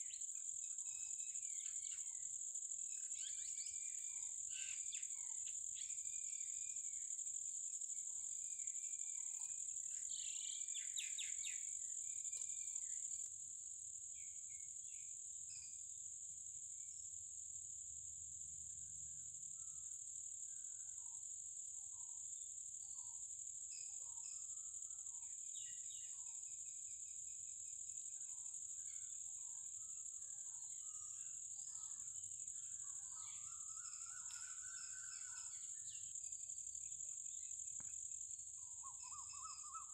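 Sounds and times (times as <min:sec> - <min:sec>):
insects droning: 0:00.0 - 0:39.9
bird chirps: 0:02.9 - 0:06.8, 0:09.1 - 0:13.2, 0:21.9 - 0:37.9, 0:38.6 - 0:39.9
bird call: 0:32.8 - 0:36.0, 0:38.7 - 0:39.9.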